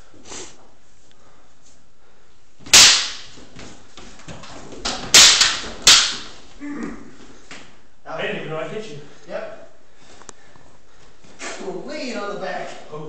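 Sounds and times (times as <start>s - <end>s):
wooden swords clacking: 2.6s - 6.6s.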